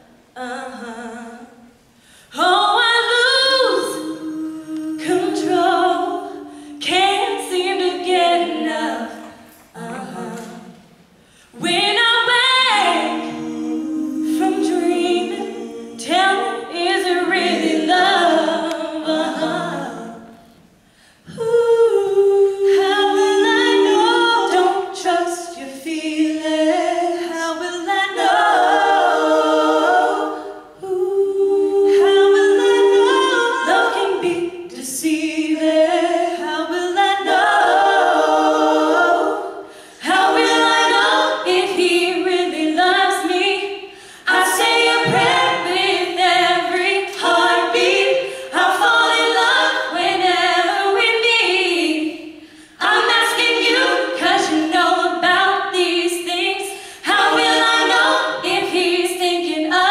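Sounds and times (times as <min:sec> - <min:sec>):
a cappella vocal harmony: 0:00.0 - 0:59.9
singers breathing: 0:01.8 - 0:02.4, 0:11.0 - 0:11.6, 0:20.7 - 0:21.3, 0:39.6 - 0:40.0, 0:43.8 - 0:44.3, 0:52.3 - 0:52.8, 0:56.7 - 0:57.1.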